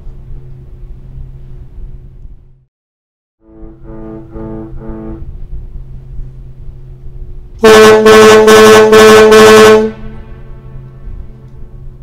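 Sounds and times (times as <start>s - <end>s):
steady low hum: 0.0s - 2.7s, 3.4s - 12.0s
faint ship's whistle blasts: 3.4s - 5.3s, 7.6s - 10.4s
loud deep ferry whistle blast: 3.4s - 5.4s, 7.6s - 10.5s.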